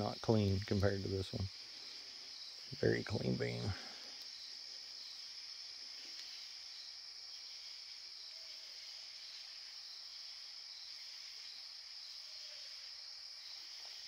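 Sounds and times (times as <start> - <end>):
night insects chorus: 0.0 - 14.0.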